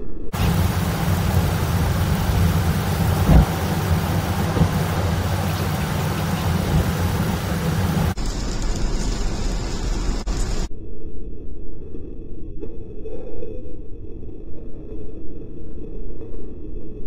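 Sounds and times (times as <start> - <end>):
deep steady rumble: 0.3 - 10.7
low thump: 0.4 - 8.0
heavy rain on moving car: 0.4 - 10.7
thin hiss: 0.4 - 10.7.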